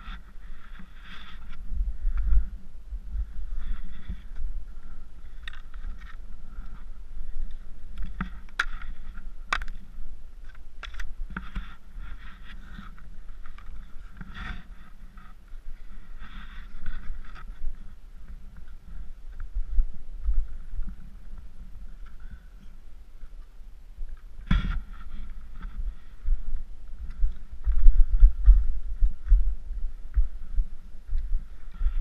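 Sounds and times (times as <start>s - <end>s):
skis crunching and scraping in snow: 0.0s - 22.5s
wind rumbling on microphone: 0.0s - 32.0s.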